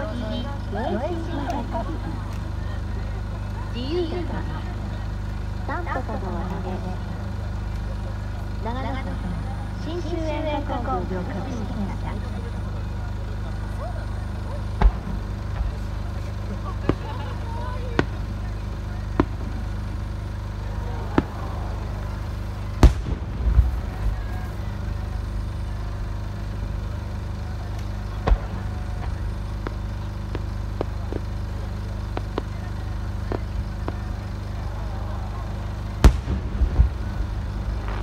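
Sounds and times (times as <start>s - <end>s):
low background noise: 0.0s - 38.0s
faint firework pops: 14.7s - 15.8s, 16.8s - 17.2s, 17.9s - 18.4s, 19.1s - 19.8s, 22.8s - 24.6s, 27.7s - 31.4s, 32.0s - 34.3s, 36.0s - 38.0s
distant firework booms: 14.8s - 15.8s, 22.8s - 24.6s, 28.2s - 29.2s, 36.0s - 38.0s
rumbling echo: 21.0s - 26.9s, 35.5s - 38.0s.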